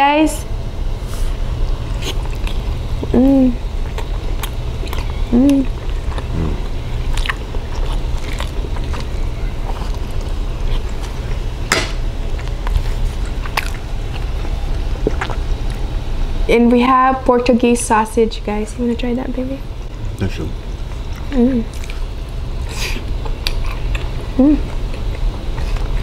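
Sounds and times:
steady low hum: 0:00.0 - 0:26.0
people chewing close up: 0:01.5 - 0:16.1, 0:19.8 - 0:26.0
person humming mmm: 0:04.9 - 0:06.8, 0:24.3 - 0:24.8.

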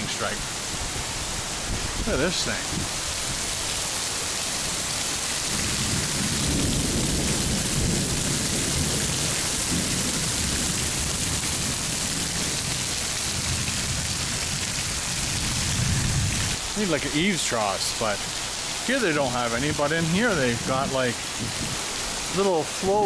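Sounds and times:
heavy rain on paving and roof: 0:00.0 - 0:23.0
thunder rumbling: 0:04.9 - 0:16.6, 0:19.5 - 0:22.3.

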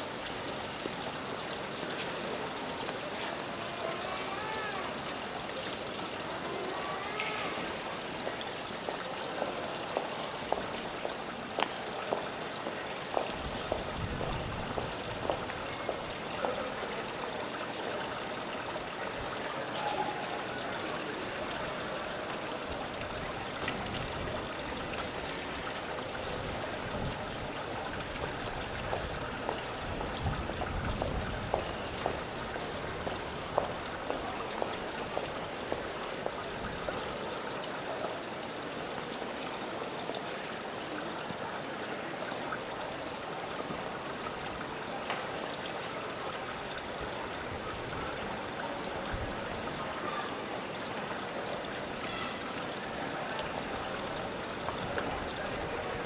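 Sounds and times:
heeled footsteps on wet cobblestones: 0:08.2 - 0:16.8, 0:26.8 - 0:37.1, 0:53.4 - 0:55.4.

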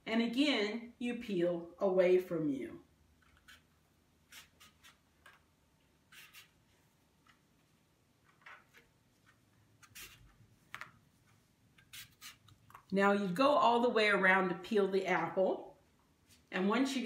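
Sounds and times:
peeler scraping apple skin: 0:04.3 - 0:05.0.

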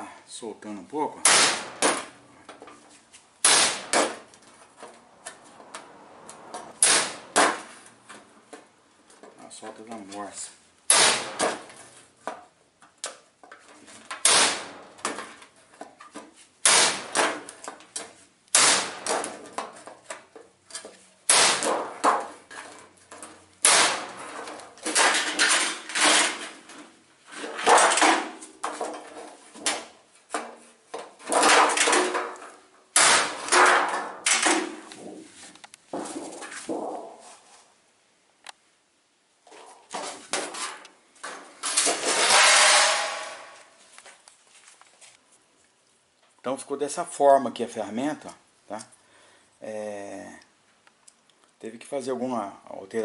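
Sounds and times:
metal sheet ringing clatter: 0:41.9 - 0:43.6.

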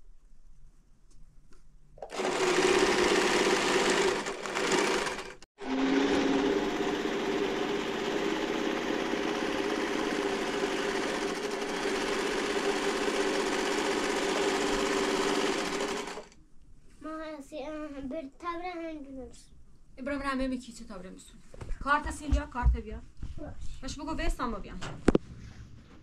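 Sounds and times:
electric sewing machine stitching: 0:02.1 - 0:16.4.

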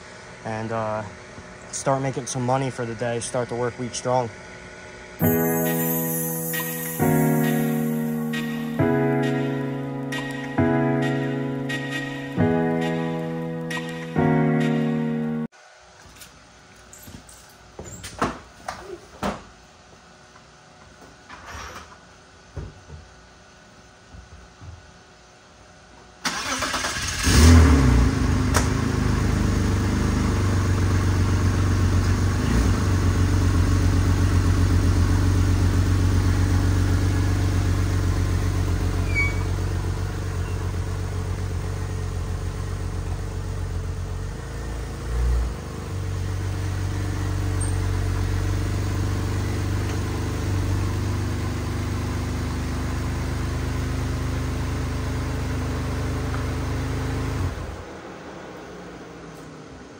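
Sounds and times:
car engine starting and idling: 0:26.1 - 0:59.9.

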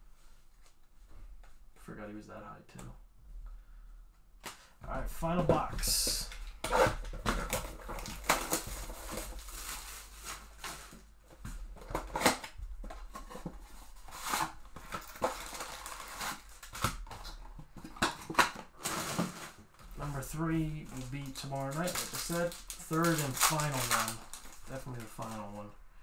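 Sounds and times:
cardboard and packaging crinkling: 0:05.1 - 0:25.7.

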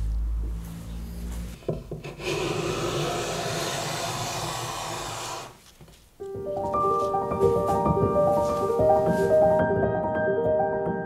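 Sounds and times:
hand plane shaving wood: 0:02.0 - 0:05.6
piano music: 0:06.2 - 0:11.0.

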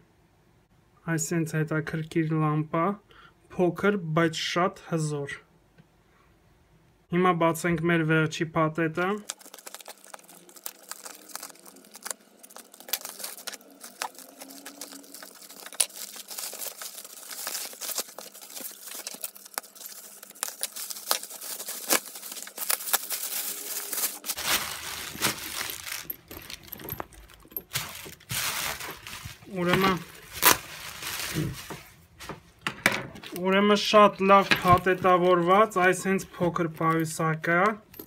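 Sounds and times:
plastic film rustling and crinkling: 0:09.1 - 0:32.6, 0:34.2 - 0:36.9
bubble wrap pulled off: 0:09.2 - 0:32.6
scissors cutting mailer: 0:09.9 - 0:24.3.

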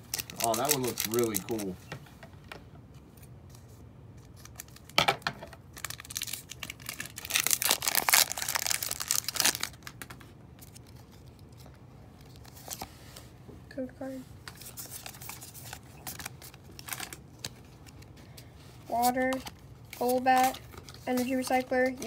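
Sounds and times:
foil wrapper tearing and crinkling: 0:00.0 - 0:01.7, 0:05.7 - 0:10.9, 0:14.7 - 0:17.5.

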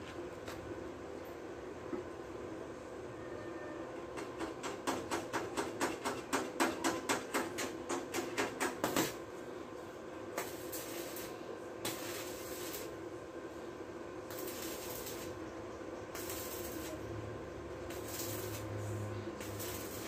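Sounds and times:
welding arc crackling and hissing: 0:08.2 - 0:09.4, 0:10.3 - 0:13.2, 0:13.8 - 0:15.5, 0:16.1 - 0:20.0.

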